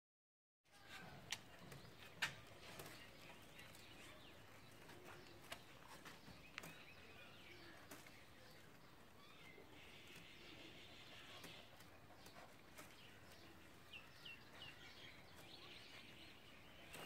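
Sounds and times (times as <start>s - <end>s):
distant bird chirps: 0.8s - 17.0s.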